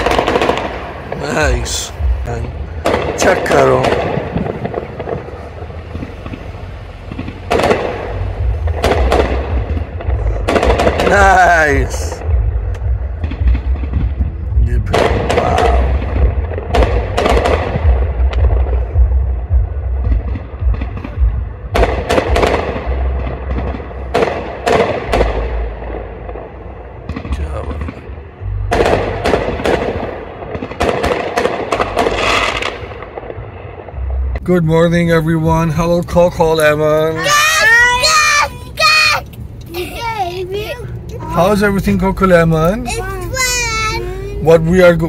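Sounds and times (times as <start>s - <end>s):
firework shells bursting: 0.0s - 1.9s, 28.7s - 33.4s
fireworks bangs: 0.0s - 39.3s
low rumble: 0.0s - 45.0s.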